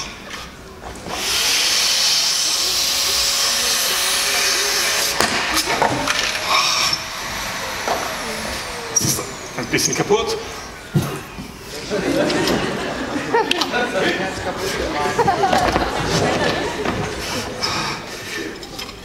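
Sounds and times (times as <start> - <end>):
vacuum cleaner running: 1.0 - 12.9.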